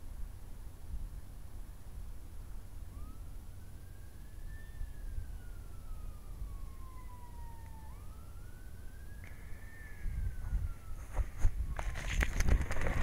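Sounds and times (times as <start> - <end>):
emergency siren wailing: 2.7 - 13.0.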